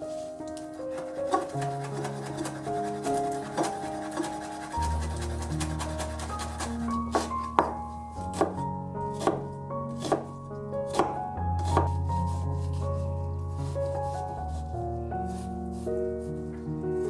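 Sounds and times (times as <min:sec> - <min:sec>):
background music: 0:00.0 - 0:17.0
knife chopping on wooden board: 0:01.0 - 0:02.6, 0:03.4 - 0:04.6, 0:05.4 - 0:10.3, 0:10.9 - 0:12.0.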